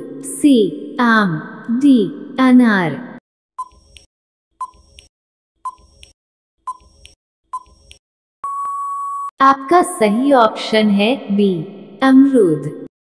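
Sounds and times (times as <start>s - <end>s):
long steady beep: 8.4s - 9.3s
short beeps: 8.4s - 9.3s.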